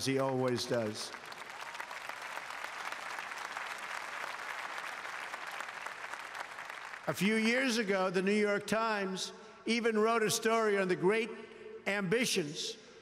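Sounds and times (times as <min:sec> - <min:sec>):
large audience applauding: 0:00.0 - 0:07.2.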